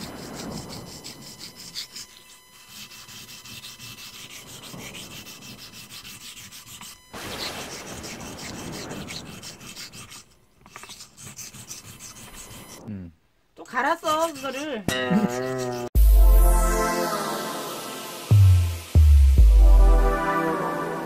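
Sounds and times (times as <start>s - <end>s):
blade sharpening on whetstone: 0.0s - 12.8s, 13.8s - 16.0s.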